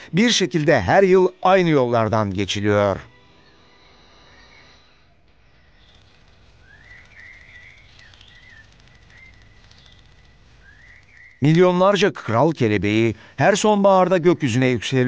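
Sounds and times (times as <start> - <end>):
bird whistles and chirps: 6.6 - 11.4.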